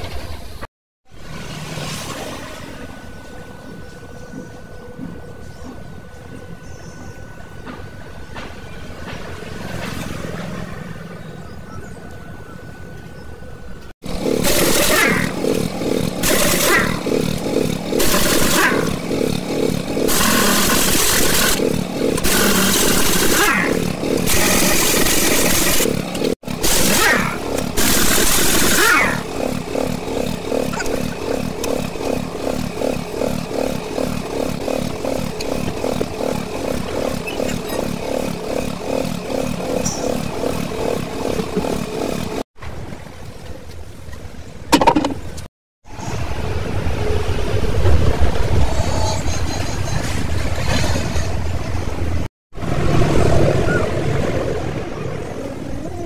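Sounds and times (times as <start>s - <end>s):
engine chugging: 13.8s - 42.5s
impact wrench bursts: 14.0s - 42.4s.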